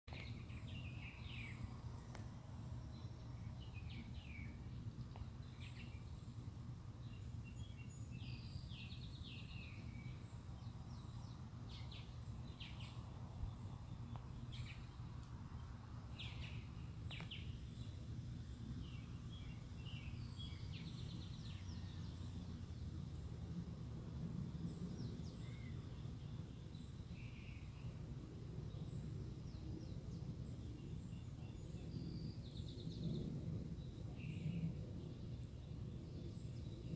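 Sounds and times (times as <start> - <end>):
low outdoor rumble: 0.1 - 36.9
birds chirping: 7.1 - 23.2.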